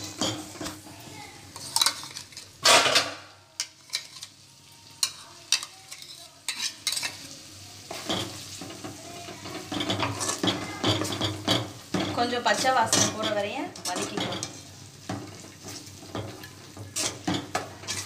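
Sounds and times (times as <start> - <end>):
faint sizzle of frying paste: 0.0 - 18.0
spoon scraping a metal pan: 3.6 - 4.4, 5.0 - 7.2, 7.9 - 18.0.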